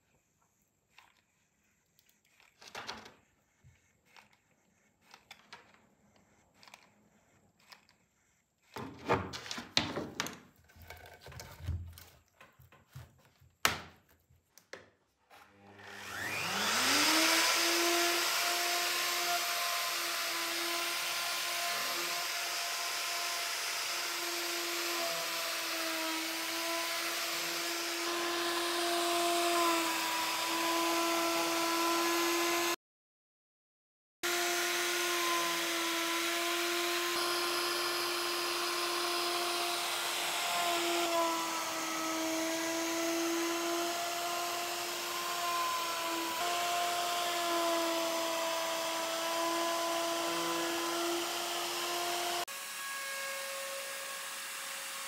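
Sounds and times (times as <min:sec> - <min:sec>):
router whining: 0:15.3 - 0:32.8, 0:34.2 - 0:55.0.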